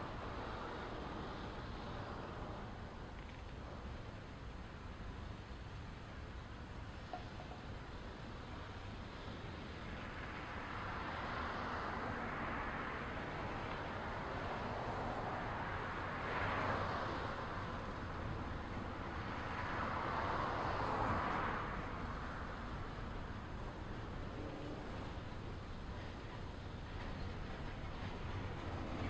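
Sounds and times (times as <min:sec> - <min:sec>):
freight train wheels rumbling: 0:21.3 - 0:29.0.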